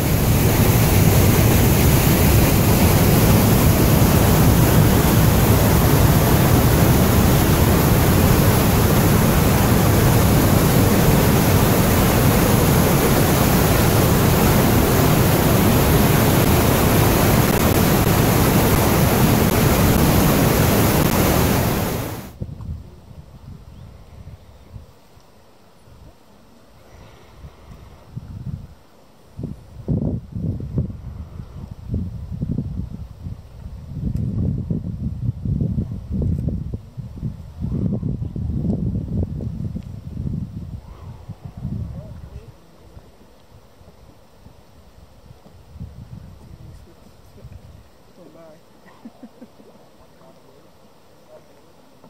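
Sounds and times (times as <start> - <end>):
whitewater roaring: 0.0 - 22.4
quiet outdoor background: 0.0 - 52.0.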